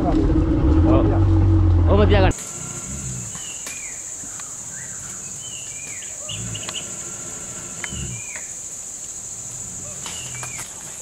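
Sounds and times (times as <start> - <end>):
low thumps: 0.0 - 2.4
insects droning: 0.0 - 11.0
birds calling: 2.1 - 11.0.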